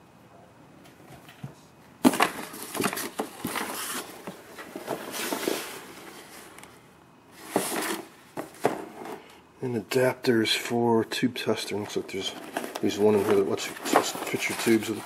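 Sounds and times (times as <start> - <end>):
paper and cardboard rustling: 2.0 - 6.6, 7.4 - 9.2, 11.6 - 15.0.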